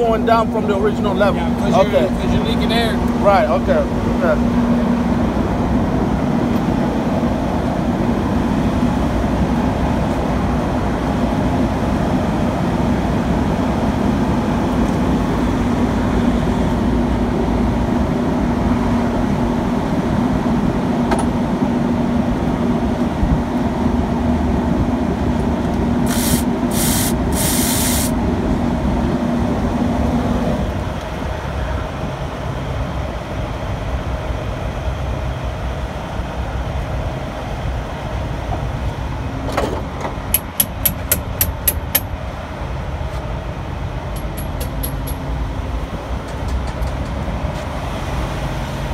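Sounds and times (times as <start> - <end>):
truck diesel engine idling: 0.0 - 19.8
air hisses: 26.0 - 28.2.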